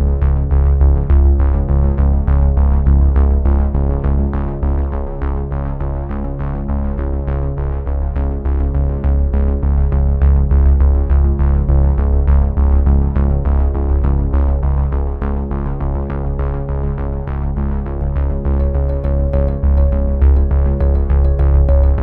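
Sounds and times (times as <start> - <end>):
background music with steady beat: 18.6 - 22.0.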